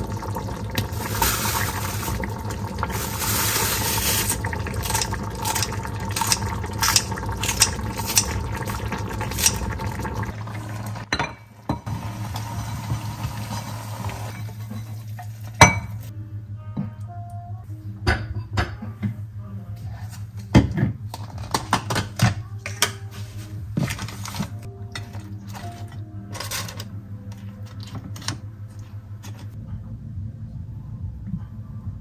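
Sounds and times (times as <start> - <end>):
tap water running into sink: 0.0 - 11.1
dishes and cutlery clinking: 23.8 - 28.4.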